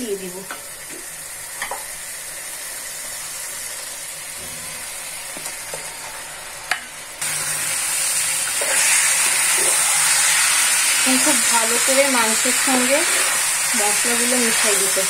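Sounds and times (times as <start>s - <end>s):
paste sizzling in hot oil: 7.2s - 15.0s.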